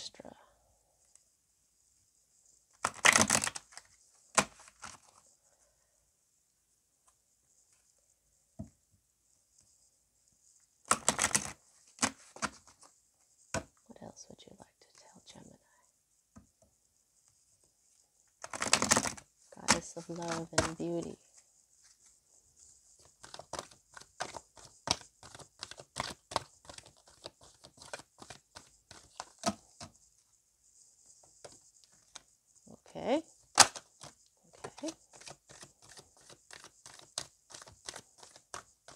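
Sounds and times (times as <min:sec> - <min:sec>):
cards flicking while shuffled: 0:02.8 - 0:05.1, 0:10.9 - 0:12.7, 0:18.4 - 0:21.1, 0:23.1 - 0:29.6, 0:33.5 - 0:38.9.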